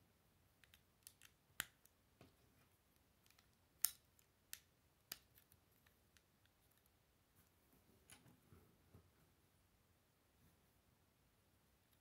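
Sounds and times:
plastic bricks clicking together: 0.6 - 1.9, 3.2 - 6.9.

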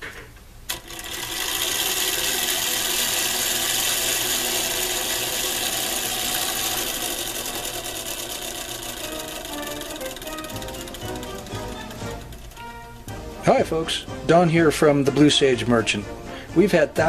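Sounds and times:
clockwork motor whirring: 0.7 - 13.3.

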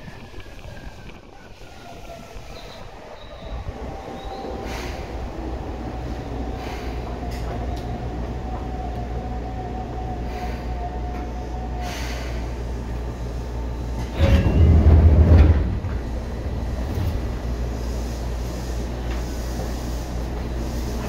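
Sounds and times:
train running rumble: 0.0 - 21.0
loud low rumble: 14.1 - 18.0.

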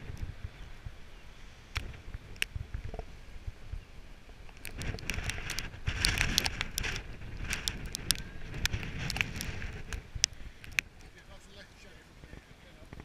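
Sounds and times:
wind buffeting microphone: 0.0 - 13.0
raindrops ticking on camera: 4.3 - 11.6.

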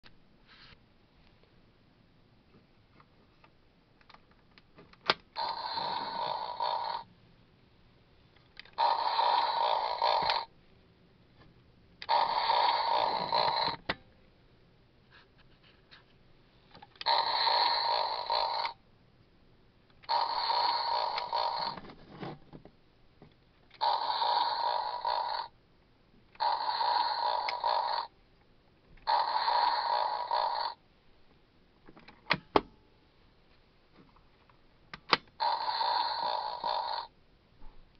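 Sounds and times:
toy electronic sound effect: 5.4 - 7.0, 8.7 - 10.5, 12.0 - 13.8, 17.0 - 18.8, 20.0 - 21.8, 23.8 - 25.5, 26.4 - 28.1, 29.0 - 30.8, 35.4 - 37.1.

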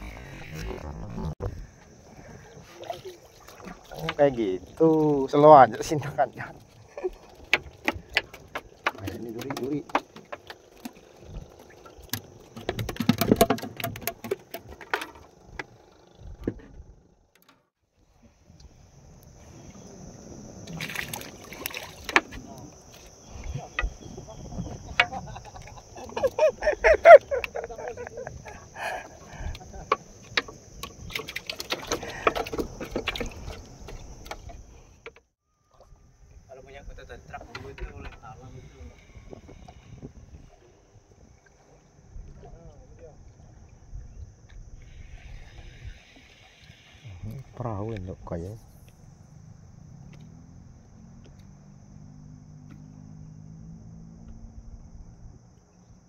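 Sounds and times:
fish flapping on wooden deck: 12.0 - 15.8.

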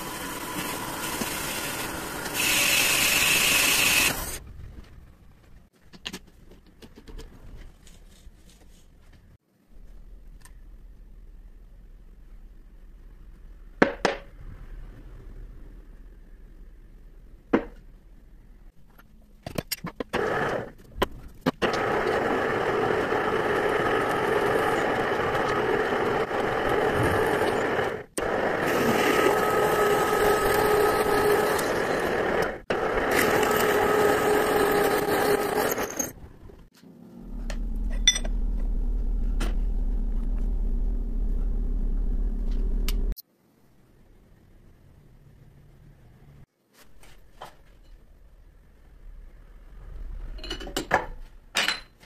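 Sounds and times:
lathe tool scraping workpiece: 0.0 - 4.4, 21.6 - 36.2
machine low hum: 21.8 - 43.2.

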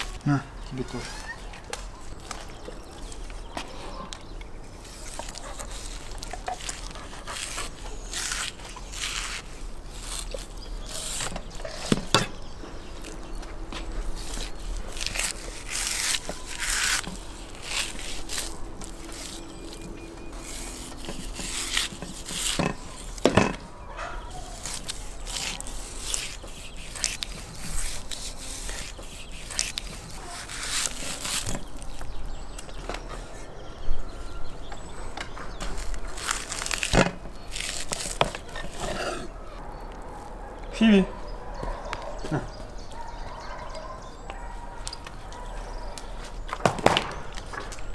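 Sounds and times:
knife slicing and scraping meat: 4.8 - 23.2, 24.3 - 32.0.

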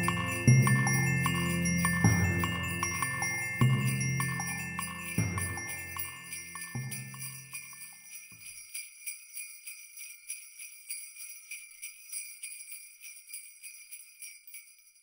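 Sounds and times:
background music: 0.0 - 7.9
sleigh bells jingling in rhythm: 0.0 - 15.0.

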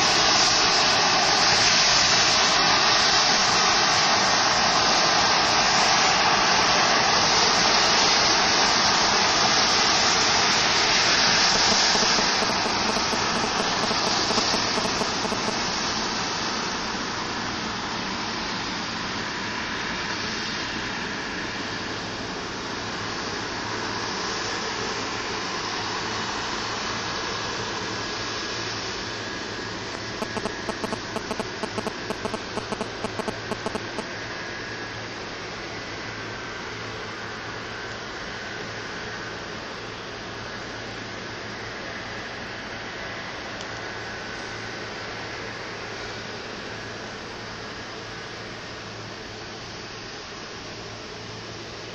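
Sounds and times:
jet engines running: 0.0 - 51.9
short clicks: 30.0 - 34.0.

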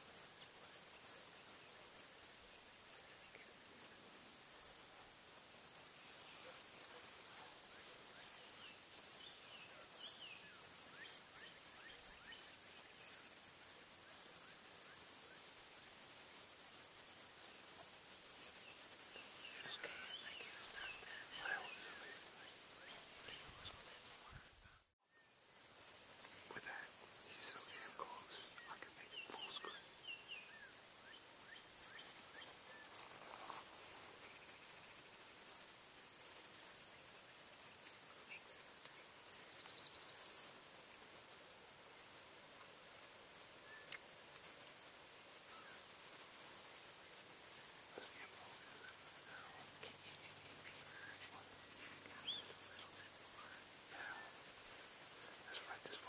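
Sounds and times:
faint bird chirps: 18.4 - 25.4, 26.2 - 33.6, 37.8 - 41.3, 43.3 - 44.6, 45.5 - 45.9, 47.5 - 56.0
high-pitched insect drone: 19.0 - 24.4, 47.6 - 56.0.

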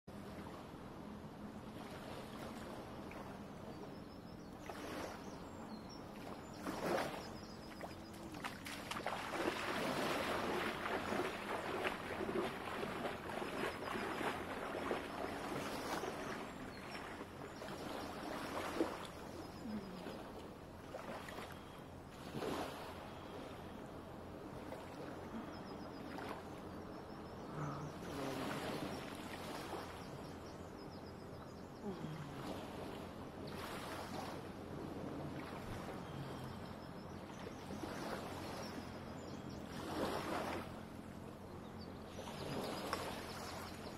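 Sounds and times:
small waves lapping at shore: 0.1 - 43.9
water splashes: 6.1 - 23.5, 27.5 - 30.1, 31.8 - 36.6.

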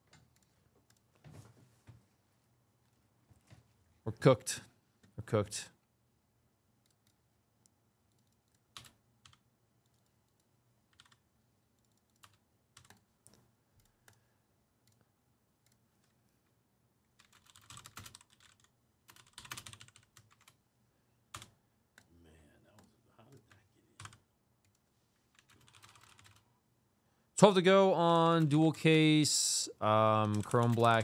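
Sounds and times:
keyboard typing: 8.1 - 11.2, 11.8 - 14.2, 17.2 - 20.6, 21.3 - 22.1, 22.7 - 26.5, 30.0 - 31.0.

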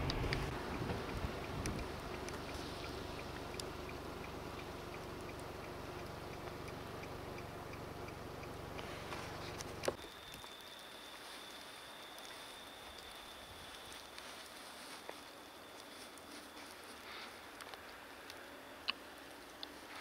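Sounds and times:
wind rumble on microphone: 0.0 - 2.4
distant traffic: 0.0 - 20.0
hiss: 1.2 - 3.5, 10.0 - 20.0
faint high-pitched tone: 10.0 - 17.0.

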